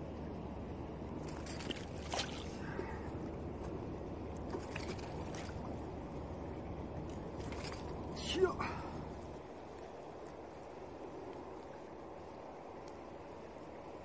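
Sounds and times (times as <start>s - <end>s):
small splashes: 1.2s - 3.2s, 4.3s - 5.8s, 7.0s - 9.8s
shallow water sloshing: 1.2s - 11.8s.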